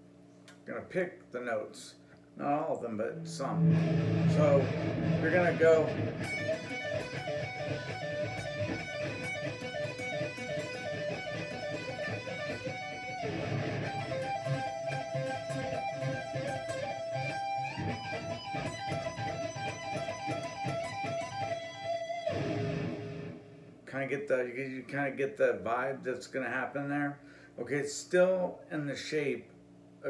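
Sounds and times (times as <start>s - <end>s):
electric guitar lick: 2.7s - 23.8s.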